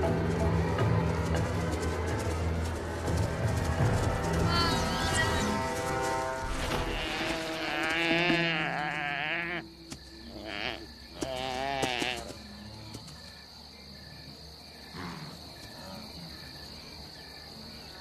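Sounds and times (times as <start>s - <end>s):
insects chirping: 0.0s - 18.0s
calf bleating in distress: 6.5s - 9.6s, 10.4s - 12.3s.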